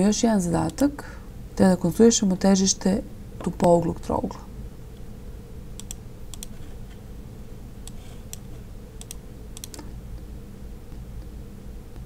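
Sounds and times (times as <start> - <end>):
faint low hum: 0.0 - 12.0
computer mouse clicks: 5.8 - 6.6, 7.8 - 9.9.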